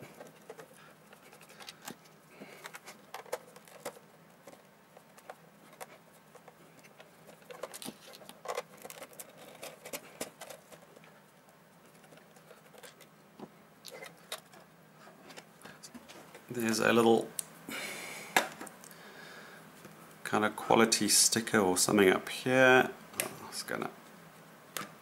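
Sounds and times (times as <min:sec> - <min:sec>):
plastic housing handled: 0:00.0 - 0:11.0.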